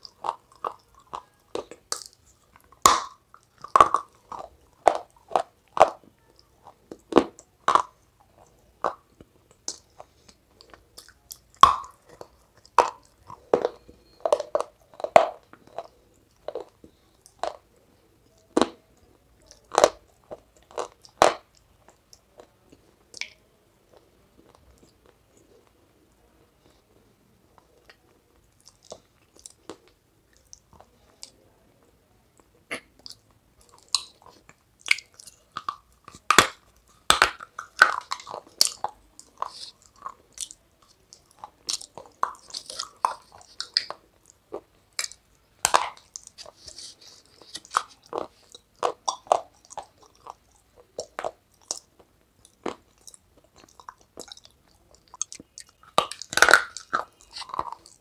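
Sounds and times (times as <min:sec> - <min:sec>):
crunching and chewing clay: 0:00.0 - 0:25.8, 0:26.5 - 0:58.0.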